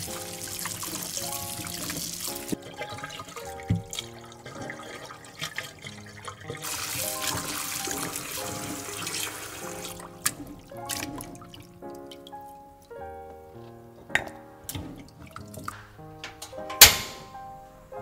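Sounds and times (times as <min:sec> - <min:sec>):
tap water running into bowl: 0:00.0 - 0:12.5, 0:14.2 - 0:15.8
hands rinsing potatoes: 0:00.0 - 0:16.7
background music: 0:00.0 - 0:18.0.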